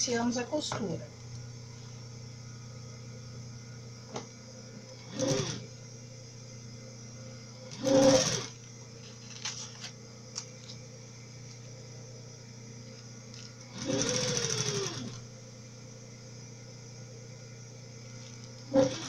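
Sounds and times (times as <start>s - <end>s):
steady low hum: 0.0s - 19.0s
sewing machine stitching: 5.0s - 5.7s, 7.7s - 8.6s, 13.7s - 15.2s, 18.7s - 19.0s.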